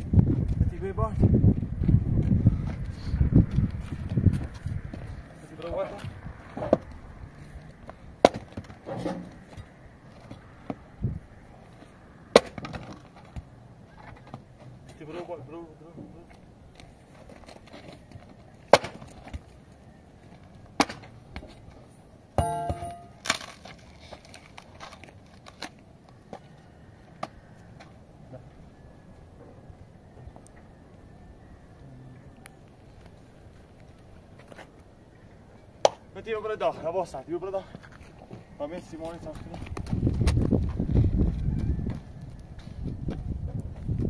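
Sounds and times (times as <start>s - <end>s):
mattock striking stony ground: 18.7s - 19.5s, 22.4s - 26.4s
sledgehammer clanging on ground: 22.4s - 23.6s.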